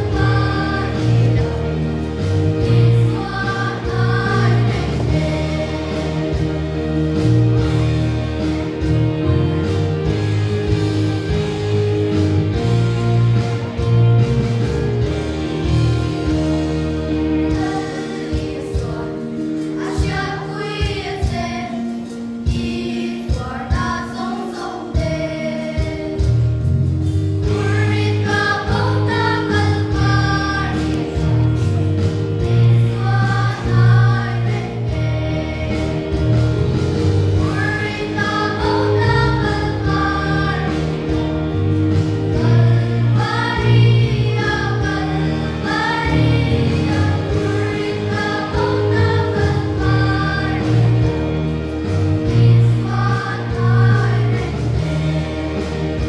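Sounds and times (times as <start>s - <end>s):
girls singing gospel: 0.0s - 7.7s, 17.4s - 26.4s, 27.4s - 56.0s
sustained instrumental accompaniment: 0.0s - 56.0s.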